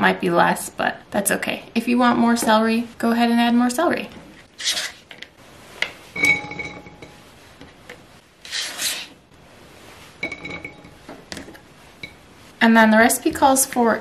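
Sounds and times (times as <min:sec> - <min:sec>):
knife scraping cutting mat: 0:04.3 - 0:05.9, 0:08.4 - 0:09.2.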